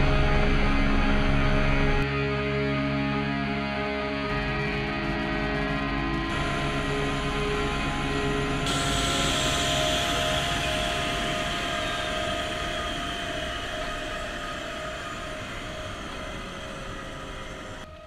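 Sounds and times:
music: 0:00.0 - 0:18.0
helicopter turbine whine: 0:06.3 - 0:17.9.

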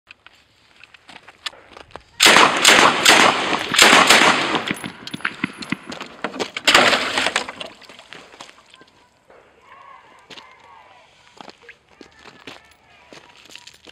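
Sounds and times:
water splashing in a plastic tub: 0:06.6 - 0:08.8.

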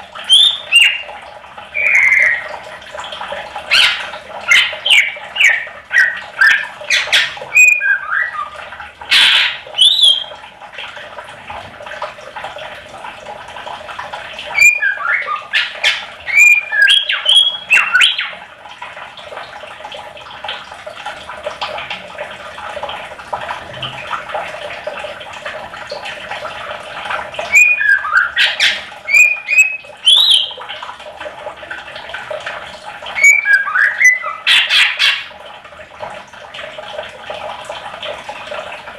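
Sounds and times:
bird chirping: 0:00.3 - 0:01.1, 0:01.8 - 0:02.4, 0:03.7 - 0:08.5, 0:14.6 - 0:18.3, 0:27.5 - 0:30.6, 0:33.2 - 0:35.2.

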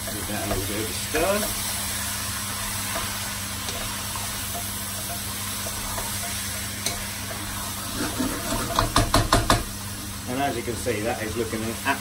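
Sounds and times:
stew sizzling in a pot: 0:00.0 - 0:12.0
spoon knocking against pot: 0:08.7 - 0:09.7.

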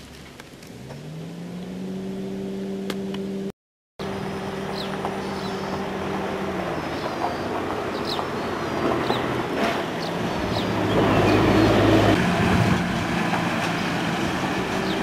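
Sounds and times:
motor engine running: 0:02.8 - 0:07.4.

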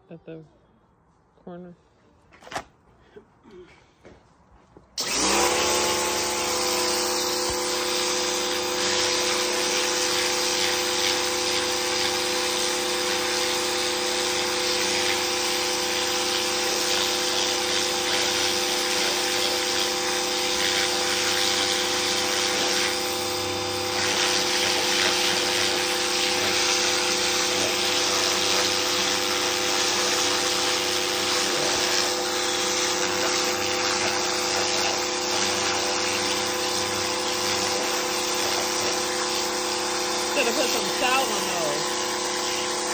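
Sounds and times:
pressure washer pump hum: 0:03.7 - 0:42.9
water jet spraying concrete: 0:05.0 - 0:42.9.

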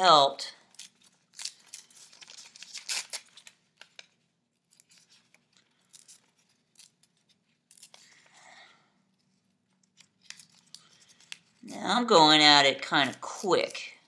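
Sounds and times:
paper tearing: 0:00.7 - 0:03.5.

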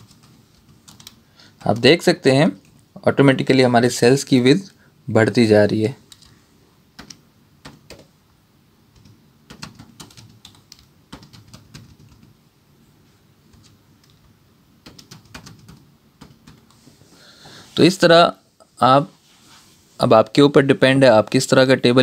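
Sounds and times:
keyboard keys clicking: 0:00.0 - 0:01.9, 0:07.0 - 0:08.1, 0:09.0 - 0:12.3, 0:13.5 - 0:16.7.

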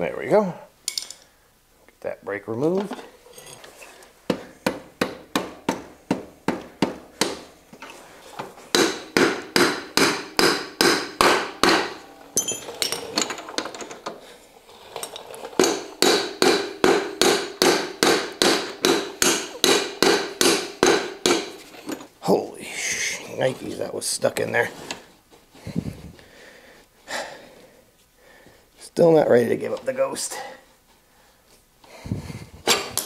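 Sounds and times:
hammer blows on metal: 0:08.7 - 0:12.8.

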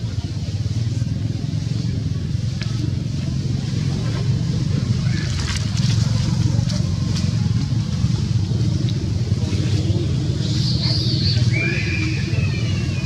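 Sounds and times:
motor vehicle rumble: 0:00.0 - 0:13.0.

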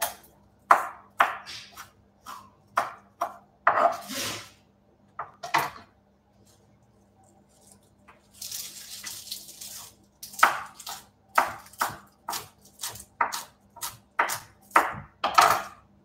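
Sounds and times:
knife chopping on wooden board: 0:00.0 - 0:04.0, 0:10.2 - 0:15.8.

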